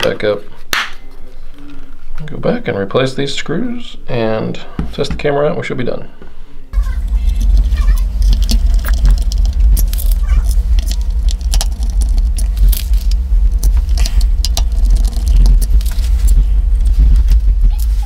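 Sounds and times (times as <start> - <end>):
steady low hum: 6.6 - 18.0.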